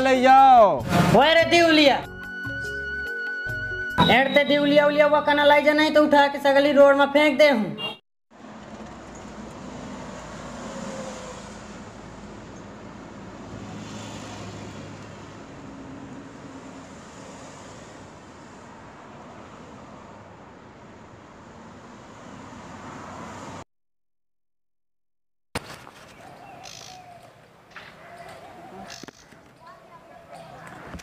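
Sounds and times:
road traffic noise: 0:07.6 - 0:23.7, 0:25.6 - 0:31.0.

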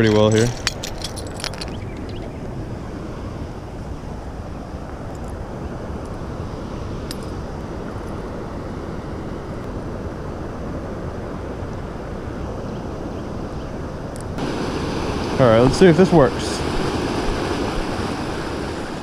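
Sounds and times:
water rushing over rapids: 0:14.4 - 0:19.0.

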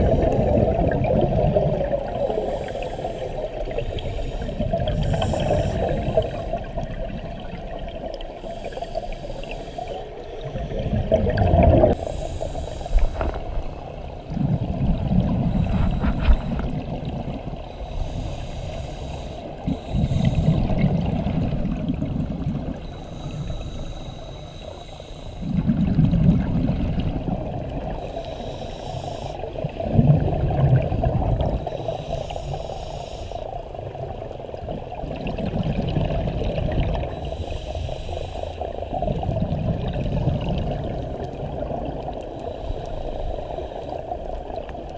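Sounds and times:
exhaled bubbles rumbling: 0:00.0 - 0:09.6, 0:10.3 - 0:12.2, 0:12.9 - 0:17.7, 0:19.6 - 0:23.0, 0:25.4 - 0:28.1, 0:29.5 - 0:31.8, 0:33.7 - 0:37.3, 0:38.7 - 0:42.4
regulator inhale hiss: 0:02.1 - 0:06.8, 0:08.1 - 0:11.2, 0:11.9 - 0:14.4, 0:15.4 - 0:21.1, 0:22.6 - 0:25.8, 0:27.7 - 0:29.9, 0:31.4 - 0:34.0, 0:36.9 - 0:39.0, 0:41.6 - 0:44.8.

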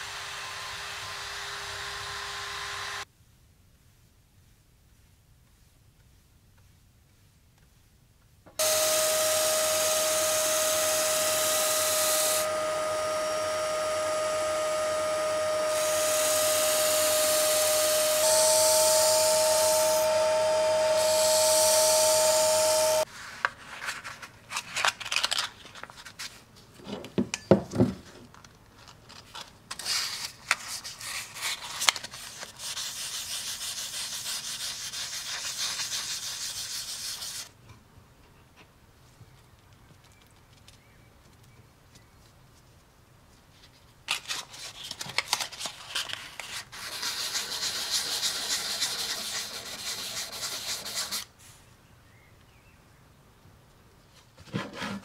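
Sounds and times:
belt grinder grinding steel: 0:00.0 - 0:03.0, 0:08.6 - 0:23.1
hand-sanding steel with abrasive paper: 0:15.7 - 0:20.1, 0:32.2 - 0:37.5, 0:46.7 - 0:51.3.

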